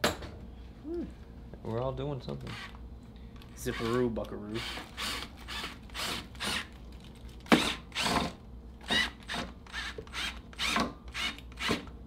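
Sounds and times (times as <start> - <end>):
cordless drill bursts: 3.6 - 6.7, 7.5 - 11.8.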